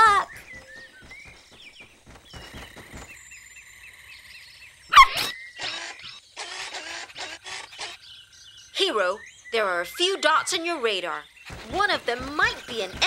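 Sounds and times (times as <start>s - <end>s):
quick chirps: 0.0s - 3.4s, 11.2s - 13.0s
cartoon puppy bark: 4.9s - 8.0s.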